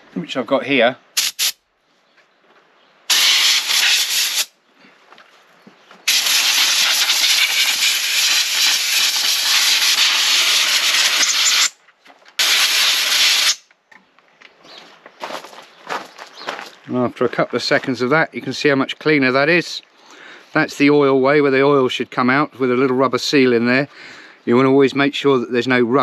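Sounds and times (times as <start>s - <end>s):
compressed air blow gun hissing: 1.2s - 1.6s, 3.1s - 4.5s, 6.0s - 11.8s, 12.4s - 13.6s.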